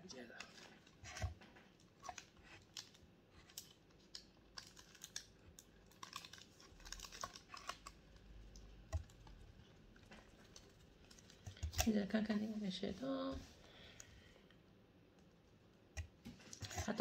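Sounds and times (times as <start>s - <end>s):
plastic wrapping crinkling: 0.0s - 13.4s.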